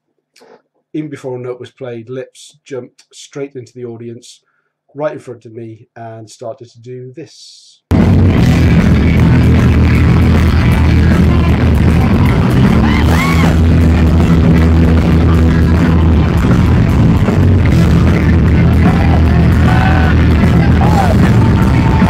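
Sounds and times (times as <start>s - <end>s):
electric guitar: 7.9s - 22.0s
live heavy metal band: 7.9s - 22.0s.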